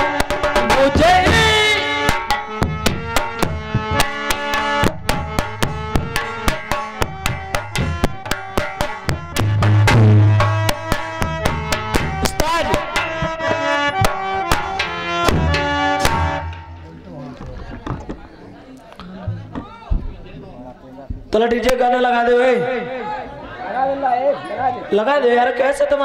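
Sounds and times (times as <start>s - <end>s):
held melody line: 0.0s - 16.9s
hand drum rhythm: 0.0s - 18.2s, 19.0s - 20.2s.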